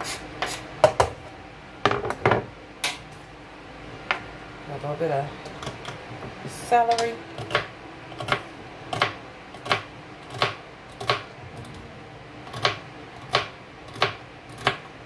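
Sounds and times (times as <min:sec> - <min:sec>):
knife chopping celery on board: 0:12.5 - 0:14.9.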